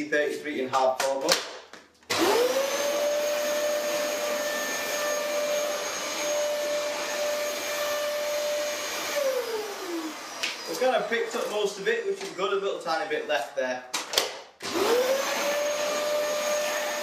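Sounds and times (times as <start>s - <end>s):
vacuum cleaner motor whine: 2.1s - 11.6s, 14.6s - 17.0s.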